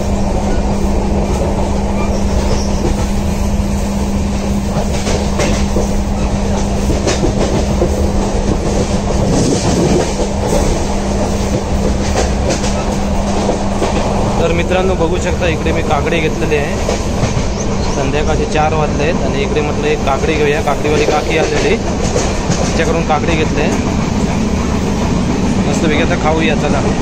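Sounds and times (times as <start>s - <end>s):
train rumble inside coach: 0.0s - 27.0s
wheels clicking over rail joints: 4.7s - 14.2s, 20.8s - 25.8s.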